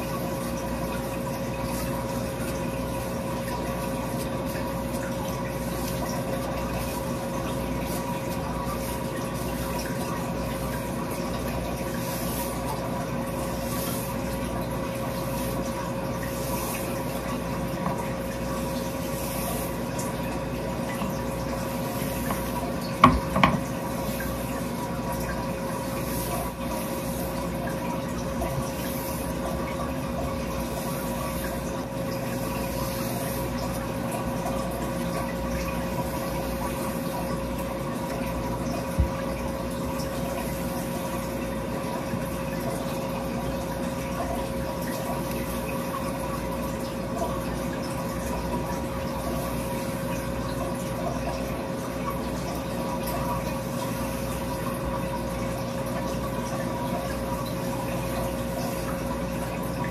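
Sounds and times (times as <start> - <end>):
background hum and hiss: 0.0 - 59.9
sharp knocks: 23.0 - 23.6.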